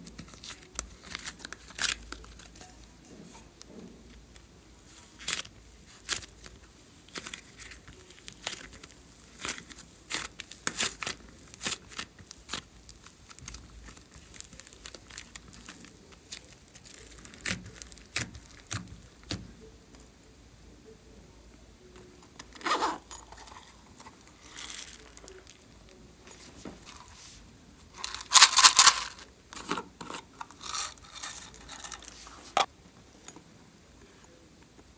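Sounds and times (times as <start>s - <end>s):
sticky clay crackling: 4.1s - 19.6s.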